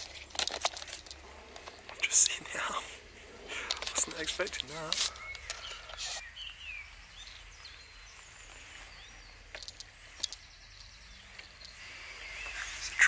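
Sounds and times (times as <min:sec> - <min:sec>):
birds chirping: 0:00.0 - 0:13.0
low steady rumble: 0:01.1 - 0:04.7.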